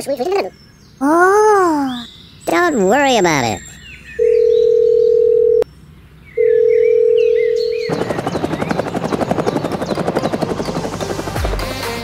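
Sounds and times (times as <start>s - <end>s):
phone call tone beep: 4.2s - 5.6s, 6.4s - 7.9s
helicopter rotor chopping: 7.7s - 12.0s.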